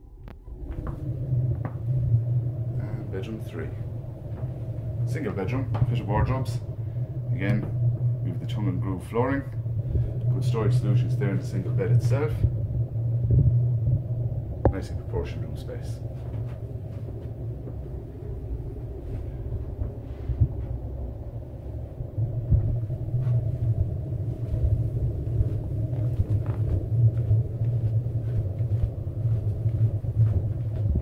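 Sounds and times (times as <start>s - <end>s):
phone microphone handling rumble: 0.0s - 31.0s
footsteps on stairs: 22.5s - 31.0s.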